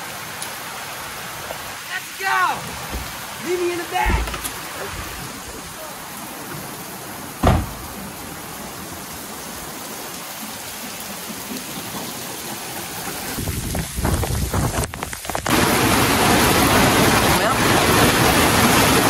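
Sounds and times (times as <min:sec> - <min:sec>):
rain hiss: 0:00.0 - 0:19.0
sharp thump: 0:07.4 - 0:07.9.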